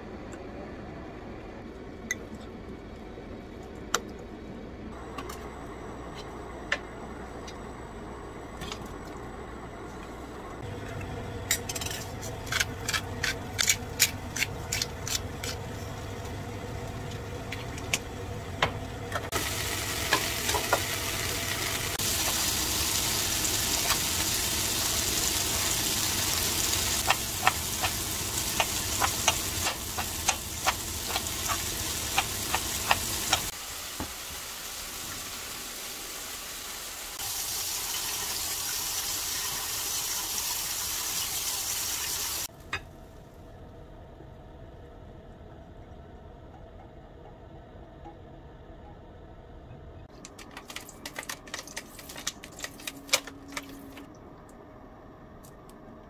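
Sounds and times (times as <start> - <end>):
vegetables sizzling in frying pan: 19.3 - 42.5.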